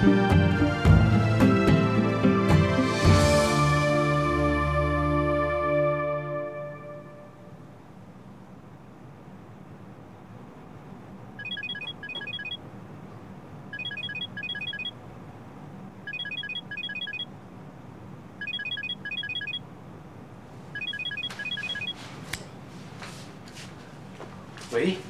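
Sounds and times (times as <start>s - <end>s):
electronic telephone ringtone: 11.4s - 12.6s, 13.7s - 15.0s, 16.1s - 17.3s, 18.4s - 19.6s, 20.8s - 22.0s.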